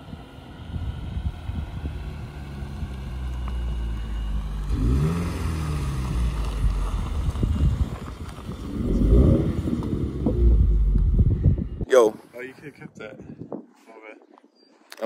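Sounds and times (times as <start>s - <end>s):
car engine driving up: 0.0s - 11.9s.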